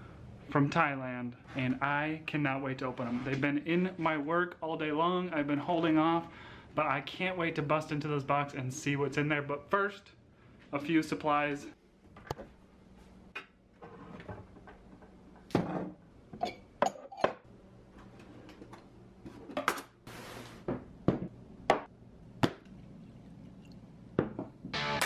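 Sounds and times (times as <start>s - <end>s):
glassware clinking: 16.4s - 17.4s
music: 24.7s - 25.0s.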